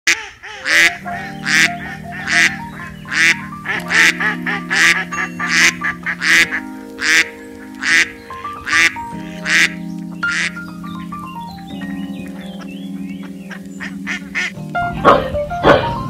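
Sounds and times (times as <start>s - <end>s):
duck quacking loudly: 0.1s - 10.6s, 13.5s - 15.9s
music with long held notes: 0.6s - 16.0s.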